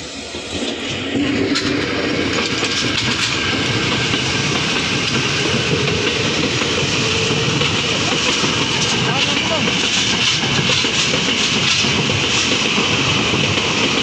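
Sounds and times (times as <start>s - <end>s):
electric train passing: 0.0s - 14.0s
train wheels rumbling on rails: 0.0s - 14.0s.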